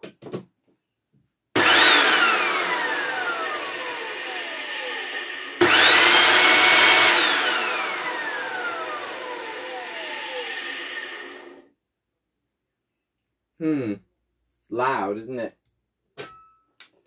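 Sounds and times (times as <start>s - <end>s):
vacuum cleaner motor whine: 1.6s - 11.7s.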